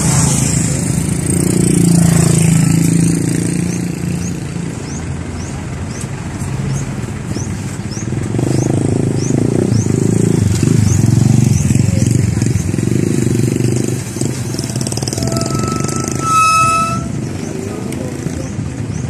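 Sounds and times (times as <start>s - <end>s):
vehicle engine driving: 0.0s - 19.0s
faint high chirp: 14.5s - 17.6s.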